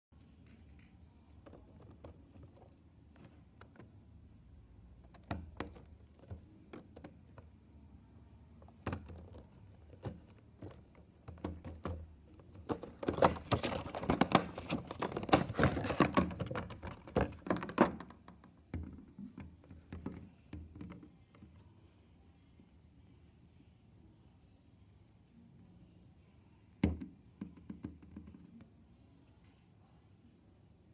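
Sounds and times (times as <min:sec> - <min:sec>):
plastic and cardboard packaging rustling: 0:09.0 - 0:18.1.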